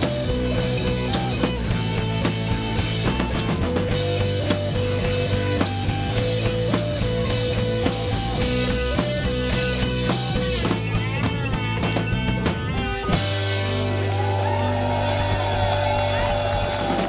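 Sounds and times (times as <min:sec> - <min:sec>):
drum kit beating steadily: 0:00.0 - 0:17.0.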